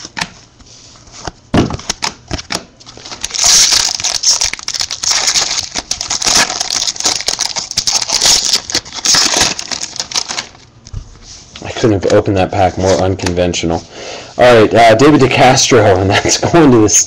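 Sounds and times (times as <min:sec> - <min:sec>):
foil wrapper tearing and crinkling: 0:02.9 - 0:10.7.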